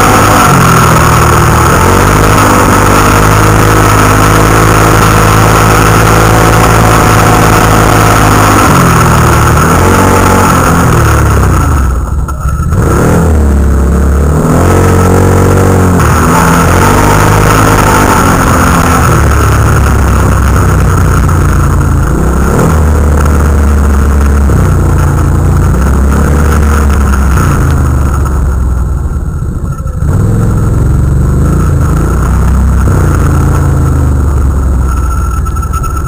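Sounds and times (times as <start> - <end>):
atv engine revving: 0.0 - 36.0.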